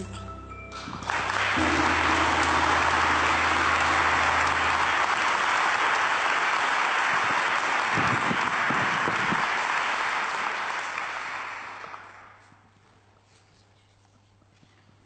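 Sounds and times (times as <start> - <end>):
audience applauding: 0.7 - 12.5.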